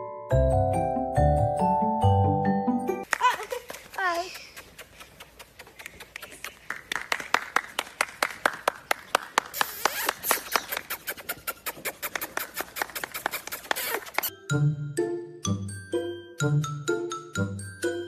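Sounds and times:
hand clapping: 0:03.0 - 0:14.3
chiming tune: 0:14.3 - 0:18.0.

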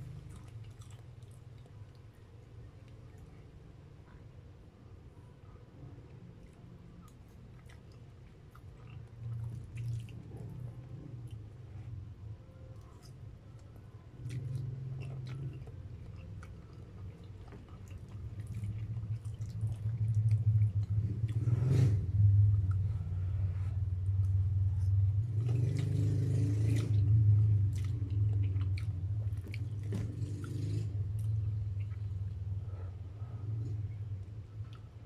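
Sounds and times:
wet chewing: 0:00.0 - 0:03.4, 0:06.0 - 0:11.6, 0:12.7 - 0:22.9, 0:24.1 - 0:32.4
steady low hum: 0:00.0 - 0:35.0.

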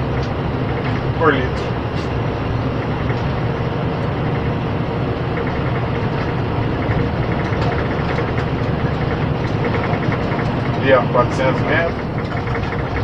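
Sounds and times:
truck diesel engine running: 0:00.0 - 0:13.0
light ticking rattle: 0:05.2 - 0:13.0.

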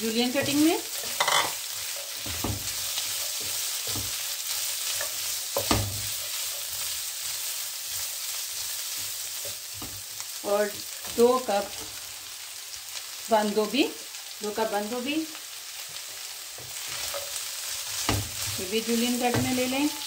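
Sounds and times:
food sizzling in a frying pan: 0:00.0 - 0:20.0
spatula stirring: 0:00.3 - 0:10.2.

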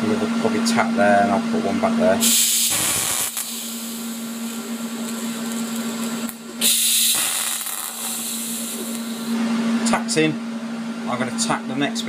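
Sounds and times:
constant low hum: 0:00.0 - 0:12.0
welding arc hiss: 0:02.2 - 0:09.4.

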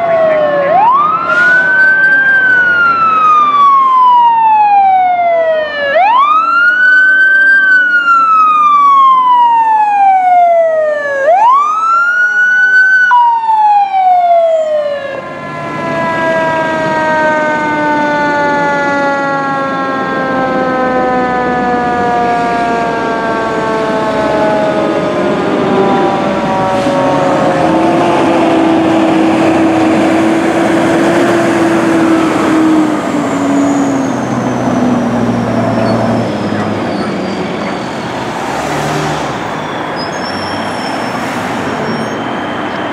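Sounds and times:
fire engine siren wailing: 0:00.0 - 0:42.9
truck engines and road noise: 0:00.0 - 0:42.9.

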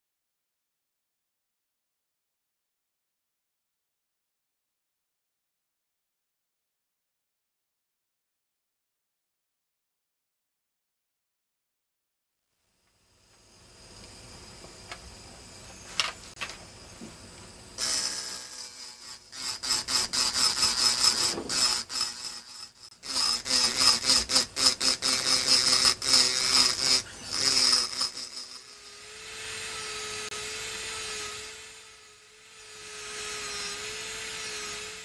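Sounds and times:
drill burr grinding glass: 0:17.0 - 0:35.0.

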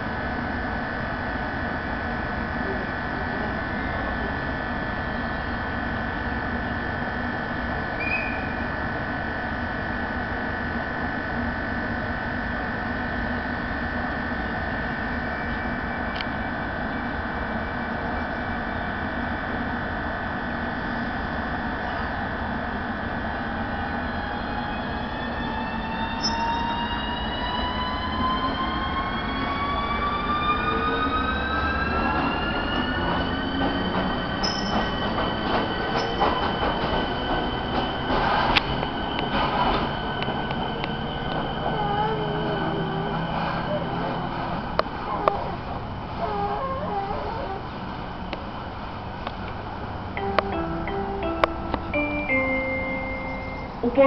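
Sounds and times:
electric train whine: 0:00.0 - 0:54.0
rising traction motor tones: 0:12.8 - 0:36.6, 0:37.5 - 0:54.0.

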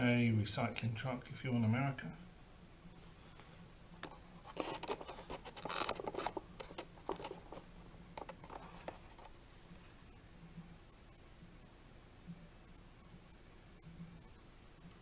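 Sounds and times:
cardboard box rustling and clicking: 0:04.0 - 0:07.6, 0:08.2 - 0:09.3.

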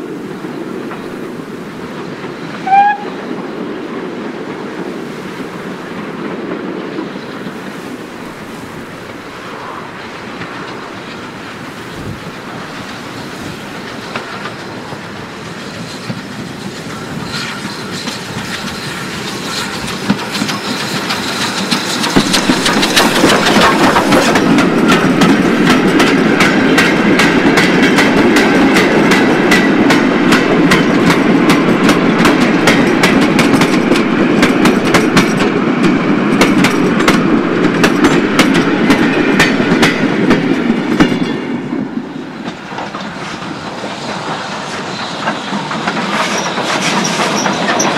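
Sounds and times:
train rumbling past: 0:00.0 - 0:47.9
wagon wheels clicking on rail joints: 0:10.0 - 0:41.3, 0:42.4 - 0:47.9.

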